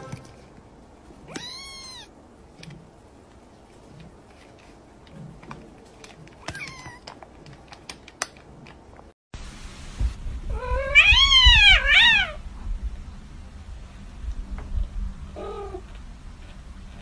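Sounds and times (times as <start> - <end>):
cat meowing loudly: 1.2 - 2.1, 10.5 - 12.4.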